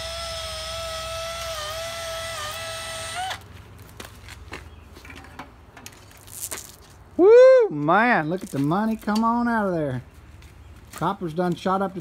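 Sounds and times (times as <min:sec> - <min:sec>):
cordless drill motor whine: 0:00.0 - 0:03.4.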